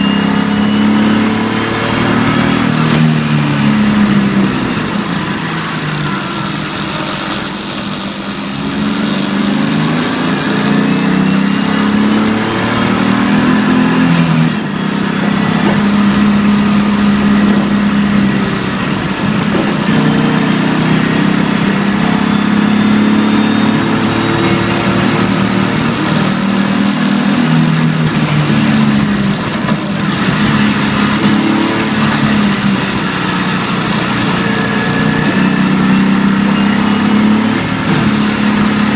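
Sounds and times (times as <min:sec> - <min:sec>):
car engine revving: 0:00.0 - 0:38.9
road noise hiss: 0:01.8 - 0:12.2.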